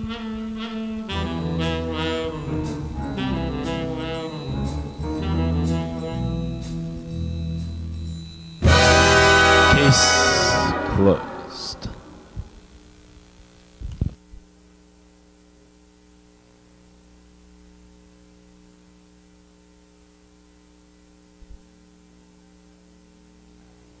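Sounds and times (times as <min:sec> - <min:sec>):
faint steady tones: 0:00.0 - 0:13.8
electrical mains hum: 0:00.0 - 0:24.0.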